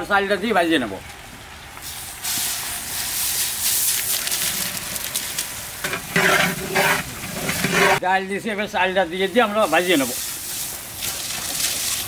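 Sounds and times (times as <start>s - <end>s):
lentils sizzling in hot oil: 1.8s - 8.0s.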